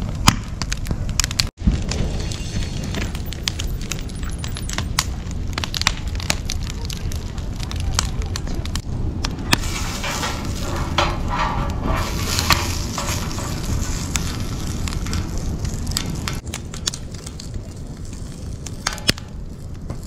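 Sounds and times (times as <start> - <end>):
low fire rumble: 0.0 - 20.0
wood fire crackling: 0.0 - 20.0
bacon fat sizzling: 9.5 - 16.4.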